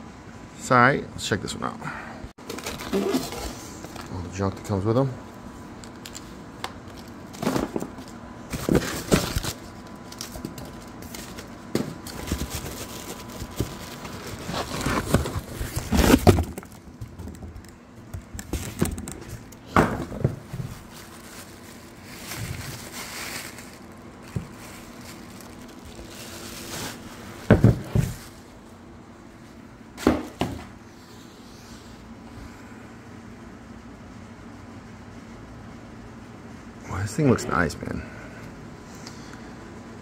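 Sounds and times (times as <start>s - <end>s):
cardboard and plastic wrap rustling: 2.4s - 4.2s, 6.1s - 28.7s.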